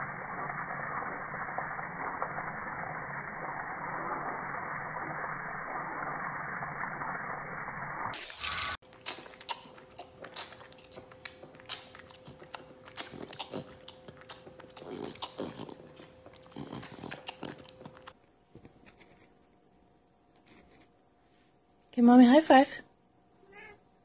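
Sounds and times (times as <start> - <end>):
cub sucking on milk bottle: 8.2 - 19.4
faint steady hum: 8.9 - 24.0.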